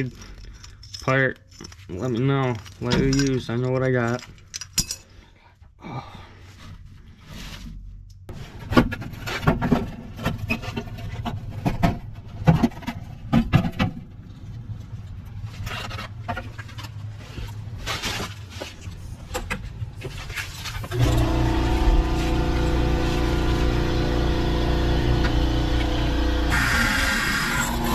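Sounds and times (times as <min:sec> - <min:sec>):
loud mechanical drone: 0:20.9 - 0:27.9.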